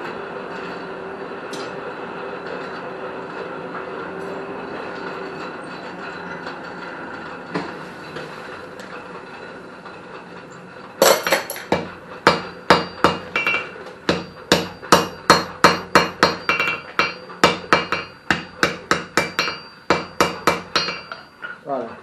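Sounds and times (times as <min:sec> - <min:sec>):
hammer striking iron on anvil: 0:11.0 - 0:21.6.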